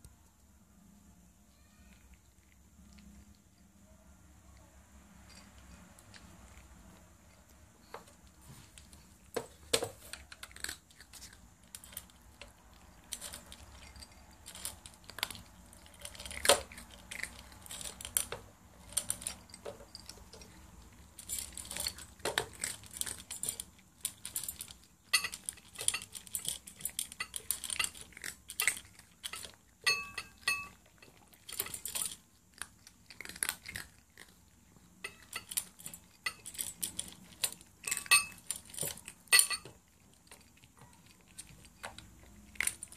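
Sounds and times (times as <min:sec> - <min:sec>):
cats crunching dry kibble: 0:02.0 - 0:03.8, 0:05.0 - 0:42.9
food clinking against bowls: 0:09.4 - 0:32.2, 0:35.0 - 0:42.9.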